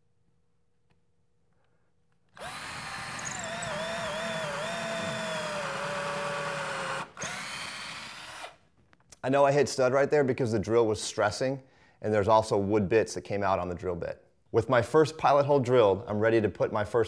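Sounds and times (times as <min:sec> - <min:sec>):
cordless drill boring into wood: 0:02.4 - 0:08.6.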